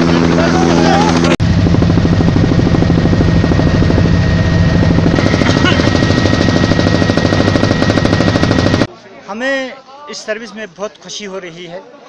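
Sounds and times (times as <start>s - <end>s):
helicopter rotor chop: 0.0s - 8.9s
high turbine whine: 0.0s - 8.9s.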